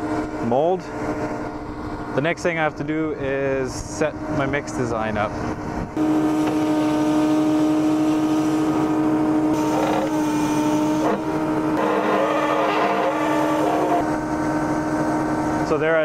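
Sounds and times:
concrete mixer truck humming: 5.3 - 16.0.

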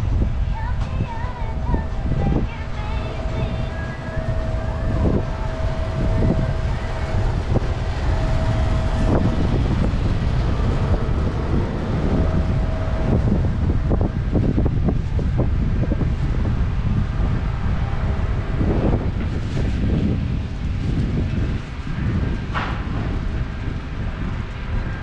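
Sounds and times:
passing traffic: 0.0 - 25.0
wind buffeting microphone: 0.0 - 25.0
faint steady tone: 1.5 - 13.6.

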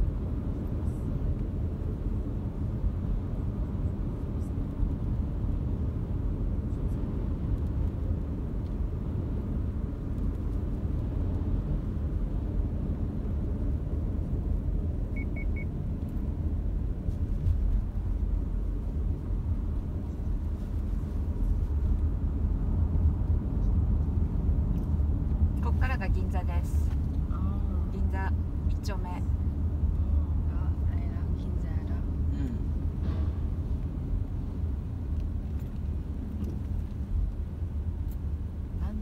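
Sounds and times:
car road and engine rumble: 0.0 - 39.0
short beeps: 15.1 - 15.7.

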